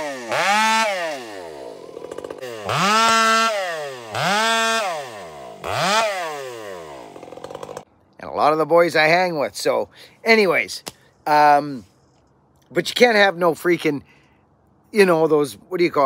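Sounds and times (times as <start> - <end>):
chainsaw revving and idling: 0.0 - 7.9.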